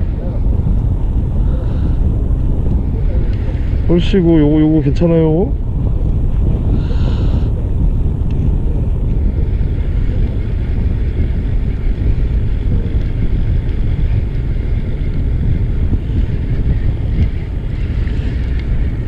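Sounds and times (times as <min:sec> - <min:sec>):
boat running noise: 0:00.0 - 0:19.0
wind buffeting microphone: 0:00.0 - 0:19.0.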